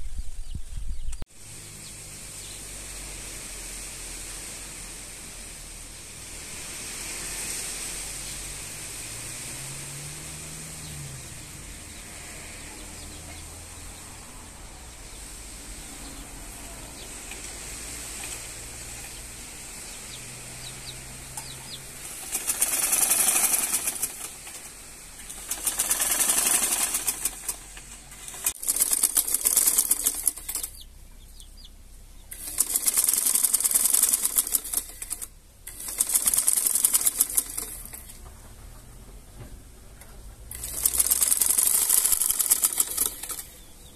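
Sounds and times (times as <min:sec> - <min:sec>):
steady hiss: 0:01.3 - 0:38.2
sewing machine stitching: 0:22.0 - 0:30.8, 0:32.3 - 0:38.2, 0:40.5 - 0:43.6.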